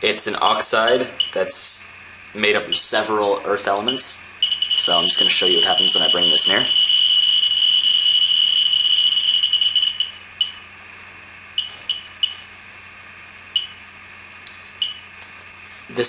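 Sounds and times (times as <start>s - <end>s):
geiger counter beeping: 3.8s - 10.6s, 11.6s - 12.4s.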